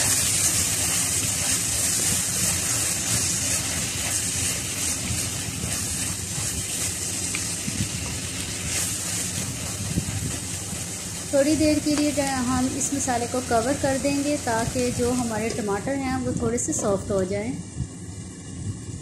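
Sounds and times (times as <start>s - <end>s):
spatula stirring in pot: 0.0s - 12.4s
vegetables sizzling in oil: 0.0s - 17.5s.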